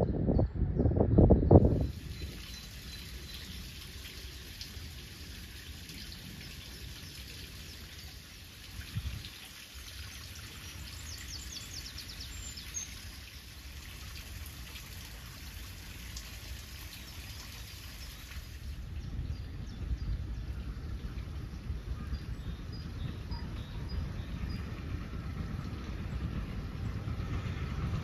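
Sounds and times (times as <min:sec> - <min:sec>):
wind rumbling on microphone: 0:00.0 - 0:09.5, 0:10.2 - 0:28.0
water trickling: 0:01.8 - 0:22.8.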